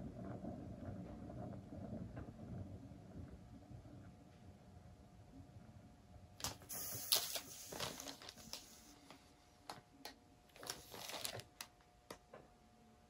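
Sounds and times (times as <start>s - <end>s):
plastic crinkling and rustling: 6.4s - 12.2s.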